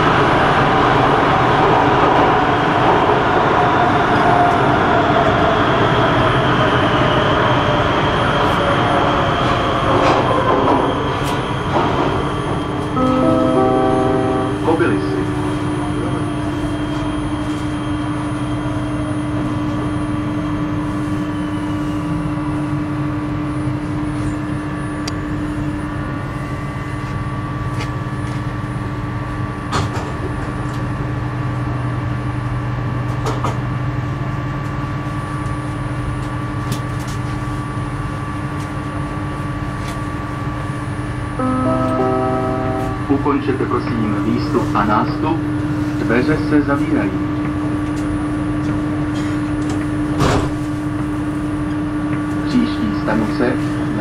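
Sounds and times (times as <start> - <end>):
electrical hum: 0.0 - 54.0
train motor whine: 0.0 - 54.0.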